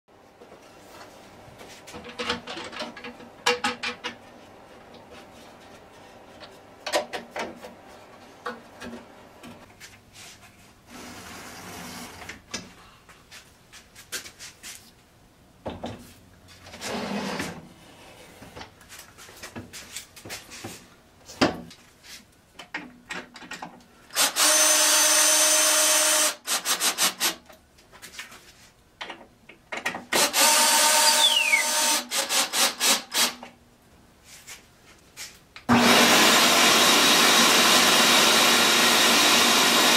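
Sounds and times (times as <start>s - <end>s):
cordless drill driving screws: 24.1s - 27.4s, 30.1s - 33.4s, 35.9s - 39.9s.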